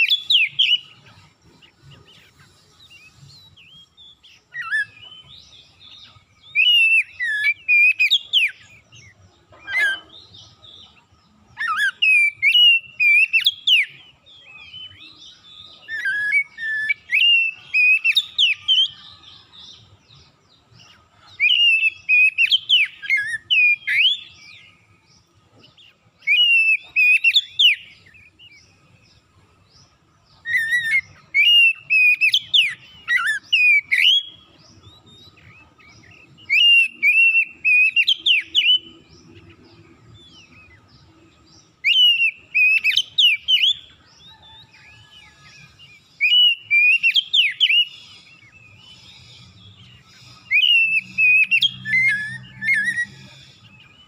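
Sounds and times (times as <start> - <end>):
bird singing whistled phrases: 0.0 - 1.0, 2.8 - 9.0, 11.5 - 19.6, 21.3 - 25.3, 26.2 - 29.0, 30.4 - 39.0, 41.8 - 54.0.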